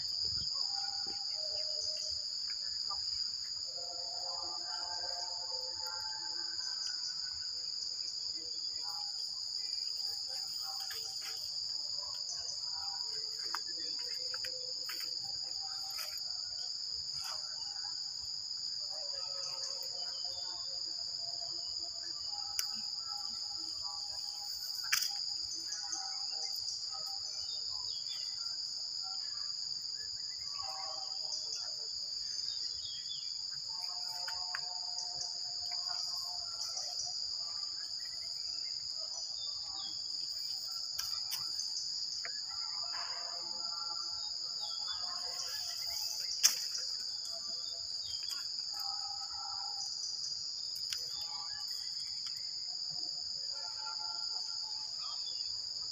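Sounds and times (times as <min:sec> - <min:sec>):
insects droning: 0:00.0 - 0:55.9
faint clicks and chirps: 0:50.7 - 0:52.5.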